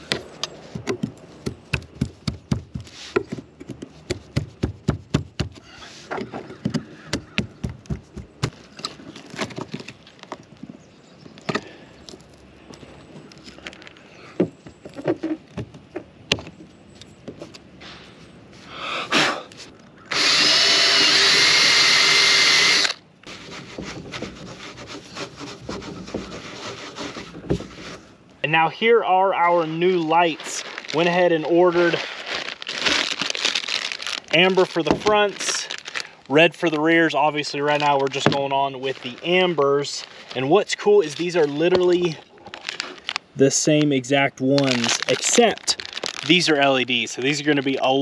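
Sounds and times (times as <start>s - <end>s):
clicks taps and scraping on roof: 0.0s - 10.8s, 23.3s - 28.1s
cordless drill running: 20.1s - 23.0s.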